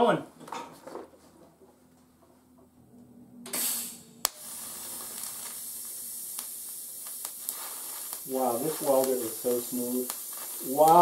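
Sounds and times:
sharp crack of arc starting: 3.5 - 11.0
welding arc hissing: 3.5 - 11.0.

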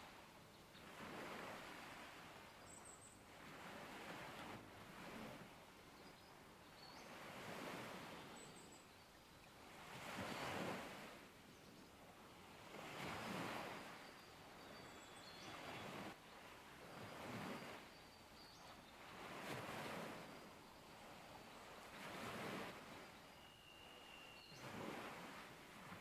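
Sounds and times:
surf on a rocky shore: 0.0 - 8.8, 9.6 - 11.4, 12.3 - 26.0
bird whistles: 23.1 - 24.8.

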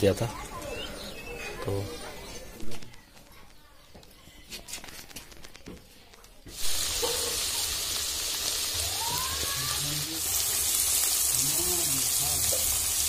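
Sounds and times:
curry sizzling in oil: 6.5 - 13.0.

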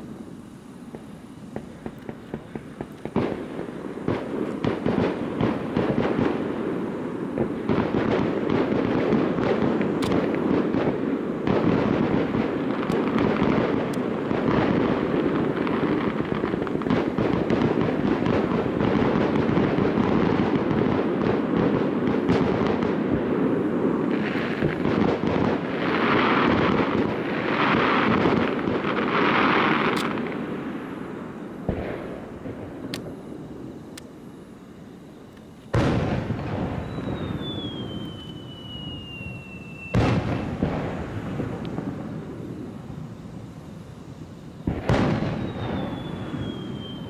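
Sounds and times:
fireworks bursting and crackling: 0.0 - 47.0
hissing crackle: 0.0 - 47.0.

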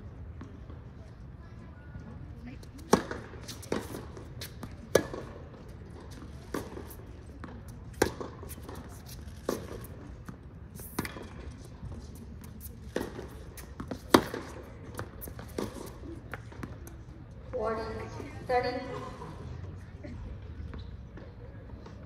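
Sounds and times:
tennis racket hitting ball: 2.8 - 5.3, 6.1 - 16.8.

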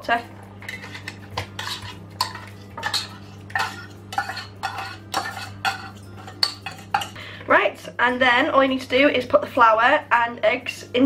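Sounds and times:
metal spoon scraping tin can: 0.6 - 7.1.

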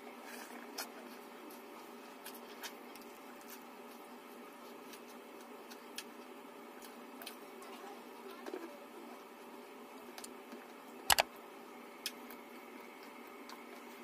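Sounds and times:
eating clicks and smacks: 4.9 - 7.4.

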